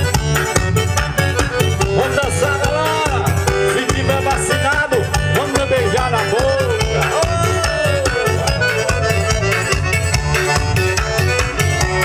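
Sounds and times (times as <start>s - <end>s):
accordion-led band playing: 0.0s - 12.0s.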